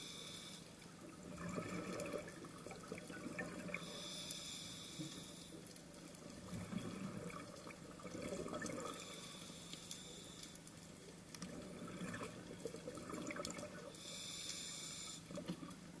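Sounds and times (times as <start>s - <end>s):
hissing regulator inhalation: 3.8s - 5.6s.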